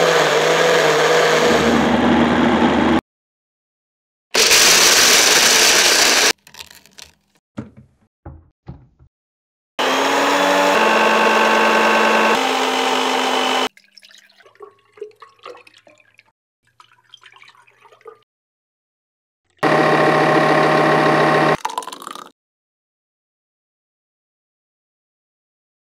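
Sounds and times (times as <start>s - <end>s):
electric blender motor: 0.0s - 3.0s, 4.4s - 6.4s, 9.8s - 13.7s, 19.6s - 21.6s.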